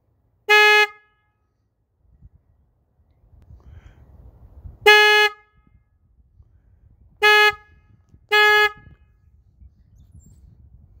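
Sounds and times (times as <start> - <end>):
motorcycle horn beeps: 0.5 - 1.4, 4.9 - 5.8, 7.2 - 9.2.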